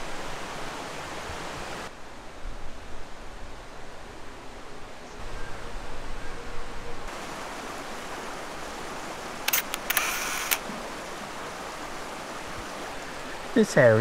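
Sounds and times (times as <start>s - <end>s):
running water rushing: 0.0s - 1.9s, 7.1s - 14.0s
camera shutter clicks and whir: 9.5s - 10.6s.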